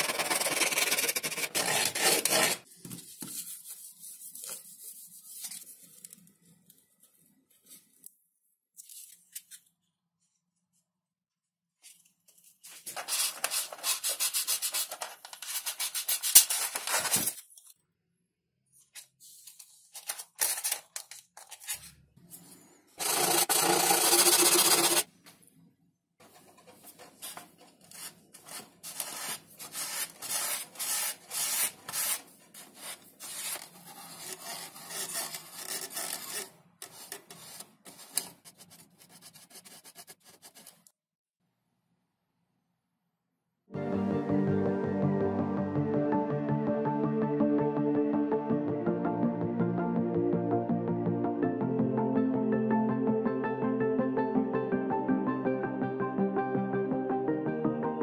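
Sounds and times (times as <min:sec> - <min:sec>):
rubbing and scraping on foam: 0:00.0 - 0:05.9, 0:12.5 - 0:17.4, 0:26.2 - 0:40.9
loud steady rasp: 0:23.0 - 0:25.0.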